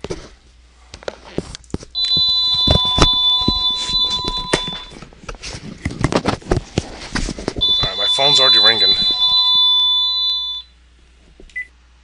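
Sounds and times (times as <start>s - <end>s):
house phone ringing: 2.0s - 5.0s, 7.6s - 10.6s.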